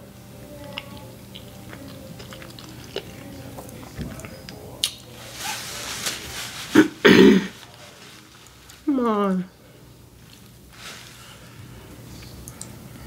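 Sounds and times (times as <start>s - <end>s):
rustling bumps: 5.2s - 8.4s.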